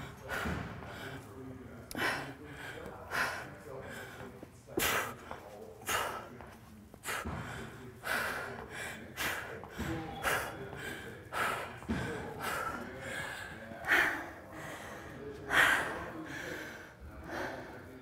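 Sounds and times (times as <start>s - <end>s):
woman breathing hard: 1.9s - 5.2s, 7.0s - 17.9s.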